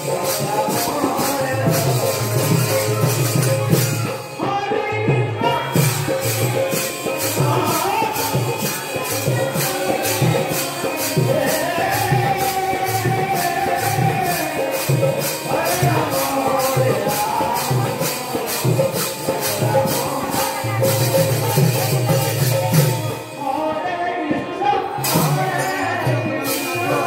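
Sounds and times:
hand cymbals clashing: 0:00.0 - 0:04.5, 0:05.5 - 0:23.4, 0:25.0 - 0:27.0
steady drum beat: 0:00.0 - 0:23.6, 0:24.8 - 0:27.0
woman singing: 0:15.6 - 0:23.1.

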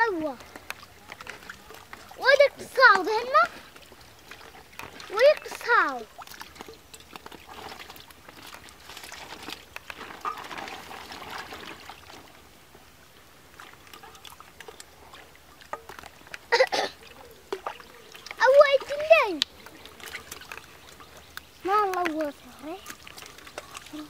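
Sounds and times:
small splashes: 0:00.0 - 0:24.0
water sloshing and dribbling: 0:00.0 - 0:24.0.

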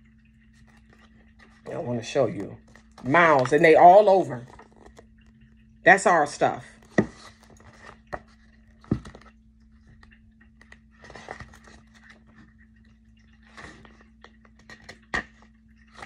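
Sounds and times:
low electrical hum: 0:00.0 - 0:16.0
book pages rustling: 0:00.5 - 0:05.3, 0:06.8 - 0:12.6.

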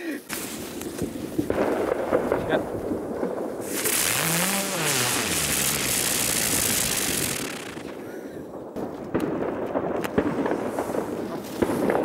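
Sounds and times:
firework cracks and crackling: 0:00.0 - 0:12.0
firework fountain hissing: 0:03.6 - 0:08.1.

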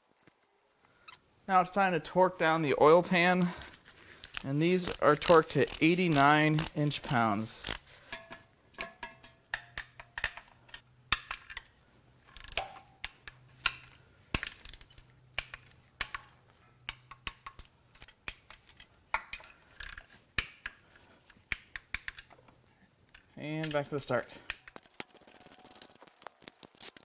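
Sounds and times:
hand ratchet clicking: 0:04.2 - 0:07.9, 0:12.3 - 0:16.3, 0:16.9 - 0:20.8.

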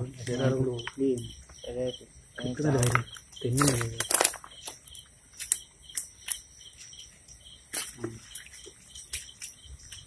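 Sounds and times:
night insects chirping: 0:00.0 - 0:10.0.

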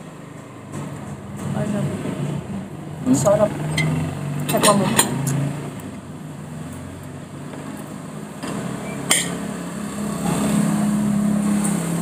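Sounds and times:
cutlery clinking on a plate: 0:09.1 - 0:09.4.

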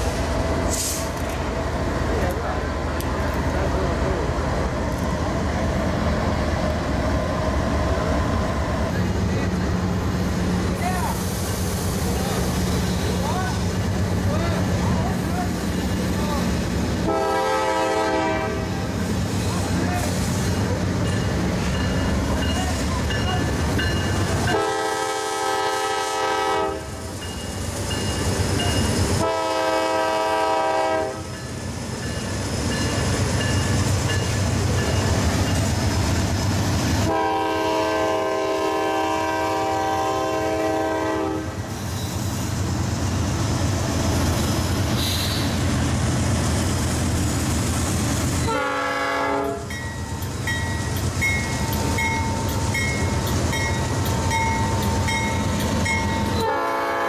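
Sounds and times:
locomotive engine rumble: 0:00.0 - 0:57.0
locomotive air horn blasts: 0:17.0 - 0:18.8, 0:24.5 - 0:26.9, 0:29.2 - 0:31.2, 0:37.0 - 0:41.6, 0:48.5 - 0:49.7, 0:56.4 - 0:57.0.

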